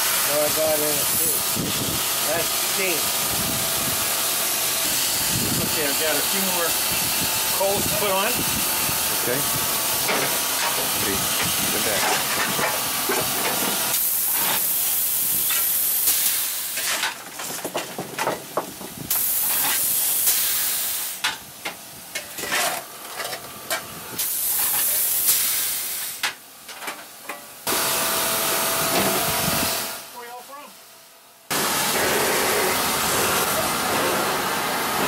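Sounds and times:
steam hissing: 0.0 - 17.1, 19.0 - 21.3, 24.1 - 26.3, 31.5 - 35.0
clattering and knocking: 17.0 - 19.0.

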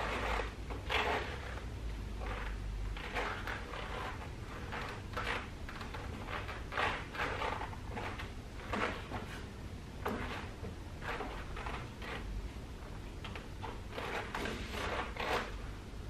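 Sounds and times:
towel swishing on car paint: 13.9 - 15.5.

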